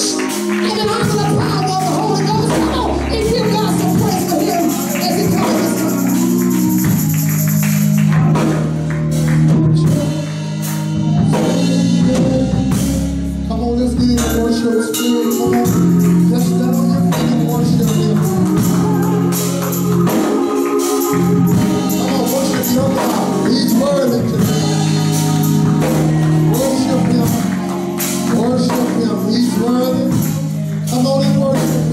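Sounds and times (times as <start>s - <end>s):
gospel singing: 0.0s - 31.9s
low bass notes: 0.0s - 31.9s
rhythmic percussion: 0.0s - 31.9s.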